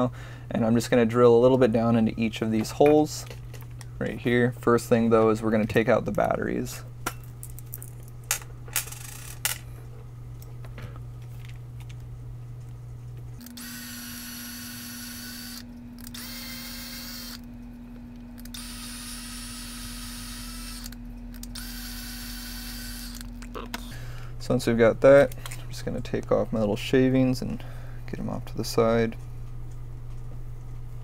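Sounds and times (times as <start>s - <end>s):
cordless drill whining: 13.4s - 17.4s, 18.4s - 23.3s.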